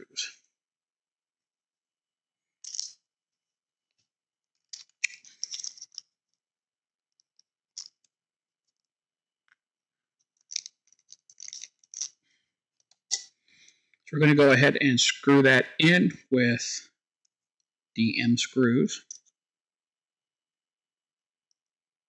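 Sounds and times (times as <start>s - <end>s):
small plastic parts clicking: 2.6s - 3.0s, 4.6s - 6.2s, 7.1s - 8.9s, 10.2s - 12.2s.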